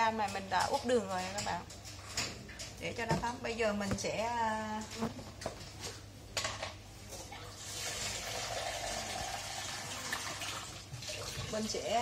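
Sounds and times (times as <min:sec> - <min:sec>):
tap water running into jug: 0:07.5 - 0:11.7.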